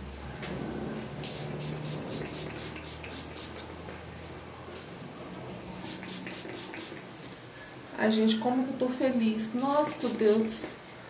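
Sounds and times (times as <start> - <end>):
hissing spray bottle spritzes: 1.2 - 3.7, 5.8 - 7.1, 9.6 - 10.8.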